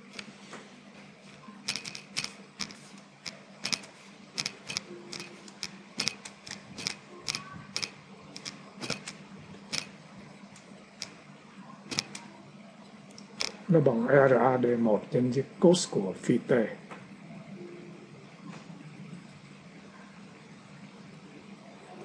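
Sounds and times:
typing on keyboard: 0:00.0 - 0:00.3, 0:01.7 - 0:09.9, 0:11.9 - 0:12.3
faint steady hum: 0:00.0 - 0:22.0.

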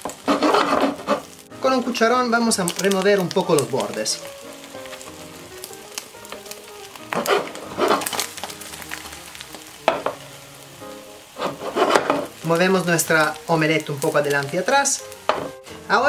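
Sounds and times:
spatula scraping pan: 0:00.0 - 0:01.5, 0:04.9 - 0:10.3, 0:11.3 - 0:14.4
eggs sizzling in a frying pan: 0:00.0 - 0:16.0.

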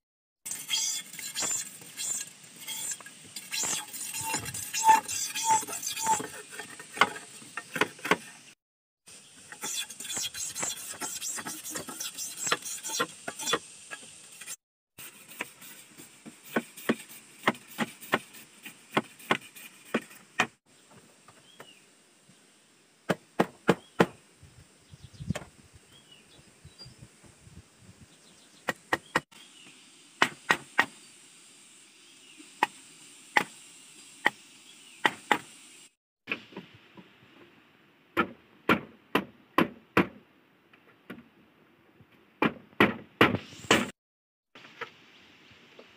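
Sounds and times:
machete striking bamboo: 0:38.2 - 0:40.2, 0:42.4 - 0:43.9.

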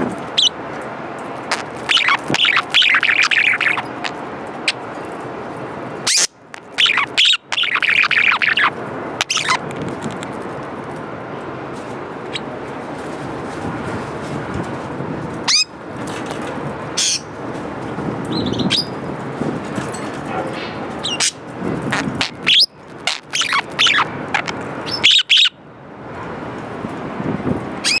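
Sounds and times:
steady background noise: 0:00.0 - 0:28.0
budgerigars chirping: 0:00.4 - 0:00.6, 0:01.5 - 0:04.8, 0:06.1 - 0:09.6, 0:21.0 - 0:25.6.

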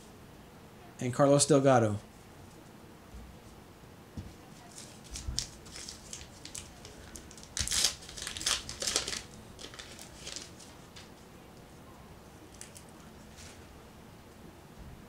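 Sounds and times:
card pack wrapper crinkling: 0:04.7 - 0:11.1.

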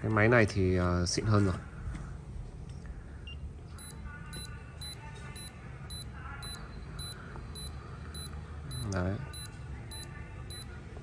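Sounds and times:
pulse oximeter beeping: 0:03.3 - 0:10.7.

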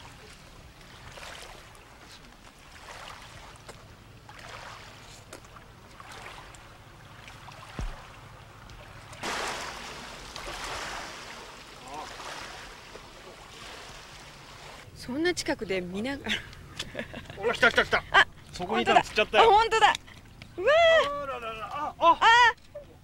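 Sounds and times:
small waves lapping: 0:00.0 - 0:23.0
dull bump: 0:07.7 - 0:08.1.

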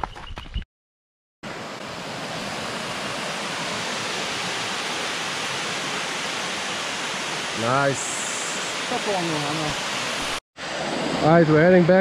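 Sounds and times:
waterfall cascading over rocks: 0:01.5 - 0:11.9.

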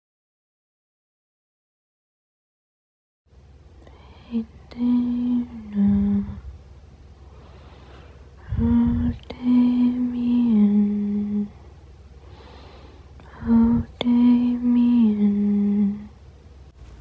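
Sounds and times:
person humming a slow tune: 0:03.8 - 0:06.6, 0:08.4 - 0:11.7, 0:13.2 - 0:16.2.

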